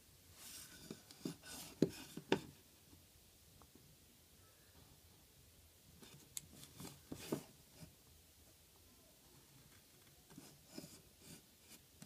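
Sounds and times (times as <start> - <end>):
pencil scratching on paper: 10.3 - 11.8.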